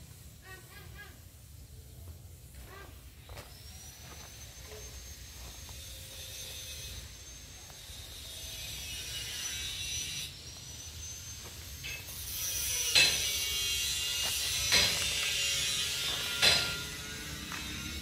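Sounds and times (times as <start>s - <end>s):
faint high whine: 0.0s - 18.0s
sharp metallic clanks: 12.9s - 13.4s, 14.5s - 17.6s.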